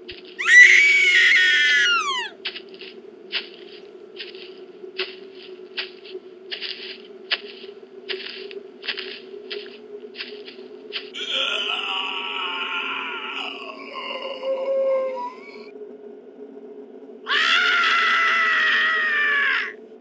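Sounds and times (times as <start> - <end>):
crunching footsteps: 0.0 - 11.4
low eerie drone: 0.0 - 20.0
high wailing scream: 0.4 - 2.4, 11.2 - 15.7, 17.3 - 19.8.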